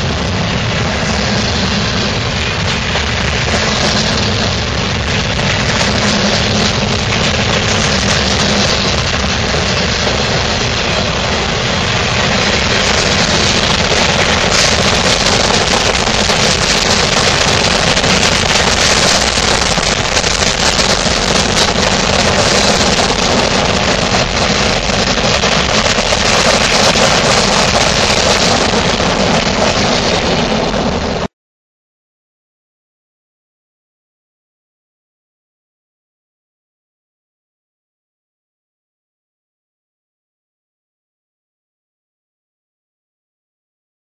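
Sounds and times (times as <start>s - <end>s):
freight train rumbling past: 0.0s - 31.3s.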